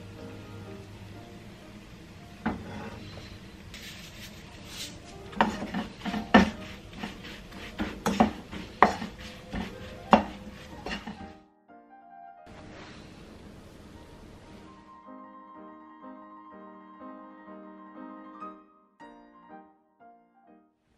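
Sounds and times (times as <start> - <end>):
spatula clacking and scraping pan: 3.8 - 11.4
spatula knock: 5.3 - 11.4.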